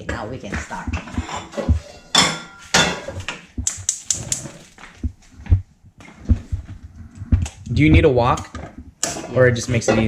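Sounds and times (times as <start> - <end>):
cookware knocks: 0.0 - 3.5.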